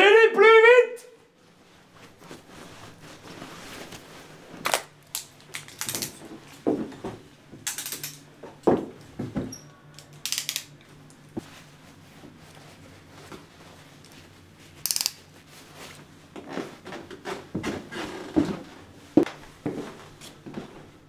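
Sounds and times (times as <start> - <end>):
nylon jacket rustling: 1.4 - 4.6
metal handcuffs clinking: 5.2 - 6.2, 7.6 - 8.2, 10.0 - 10.7, 14.9 - 15.2.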